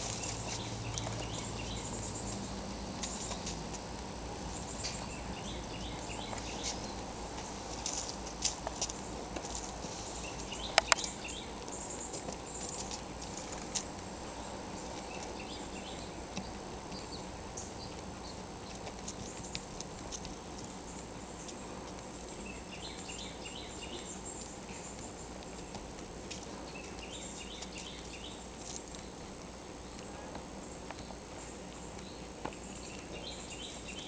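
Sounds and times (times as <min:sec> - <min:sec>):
squirrel digging in soil and leaves: 0:00.0 - 0:34.0
sharp clicks: 0:10.7 - 0:11.2.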